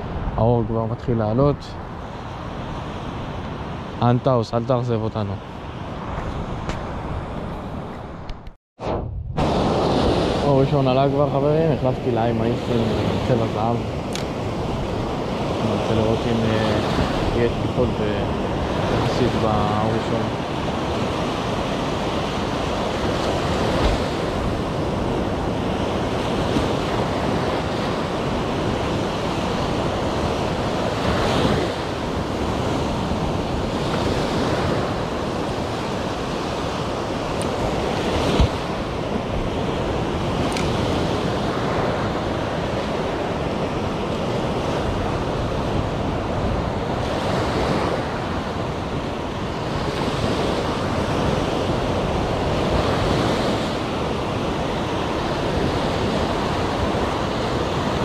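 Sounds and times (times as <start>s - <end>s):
wind buffeting microphone: 5.2s - 58.0s
surf breaking on beach: 8.8s - 58.0s
sharp click: 14.1s - 14.3s, 40.5s - 40.7s.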